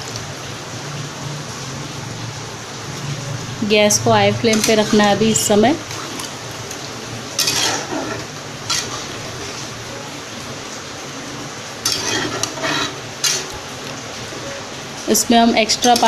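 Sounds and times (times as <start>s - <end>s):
gravy sizzling: 0.0s - 16.0s
spatula scraping a pan: 4.5s - 6.3s, 7.4s - 9.8s, 11.8s - 13.7s, 15.7s - 16.0s.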